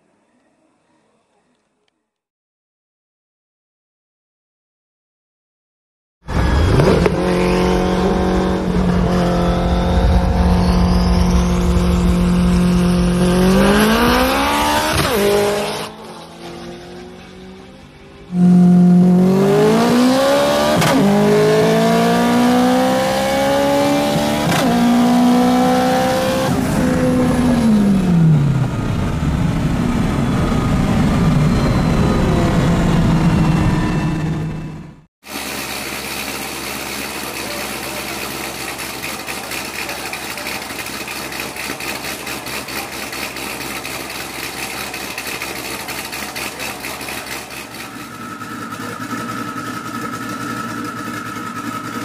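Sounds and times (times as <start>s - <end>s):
road and wind noise: 6.2s - 35.1s
car engine shifting through gears: 6.3s - 34.9s
car engine at full throttle: 6.3s - 52.0s.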